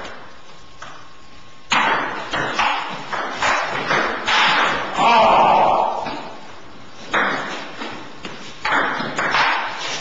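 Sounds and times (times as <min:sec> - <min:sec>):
ping pong ball hits: 0:01.7 - 0:05.0, 0:07.1 - 0:07.6, 0:08.6 - 0:09.8.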